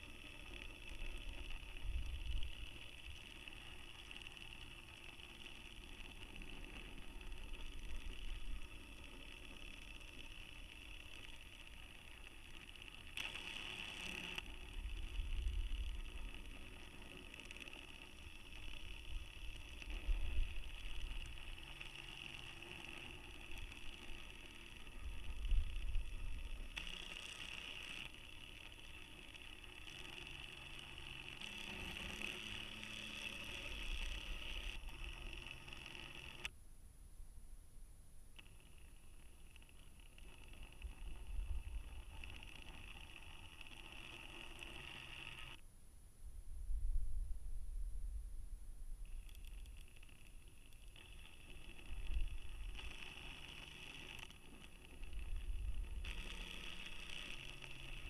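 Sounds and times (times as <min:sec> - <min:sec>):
small motor whining: 0:00.0 - 0:36.6, 0:38.4 - 0:45.6, 0:49.0 - 0:58.0
muffled low rumbles: 0:45.9 - 0:49.2.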